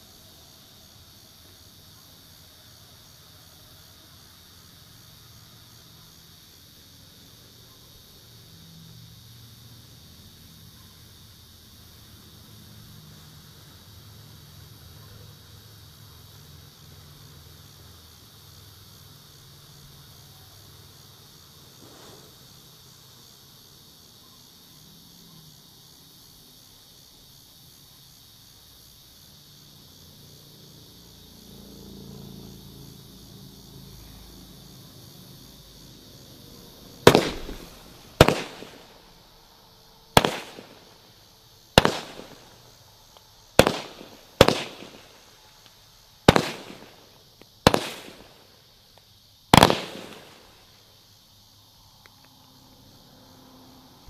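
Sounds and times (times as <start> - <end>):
crickets chirping: 0.0 - 54.0
firework bangs: 37.0 - 39.2, 40.1 - 41.1, 41.7 - 42.7, 43.5 - 45.3, 46.2 - 48.5, 49.5 - 50.8.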